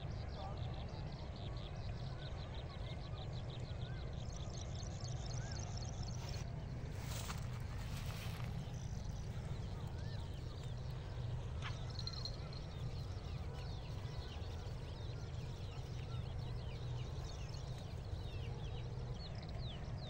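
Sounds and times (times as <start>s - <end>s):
small birds chirping: 0.2s - 20.0s
steady low rumble: 5.7s - 20.0s.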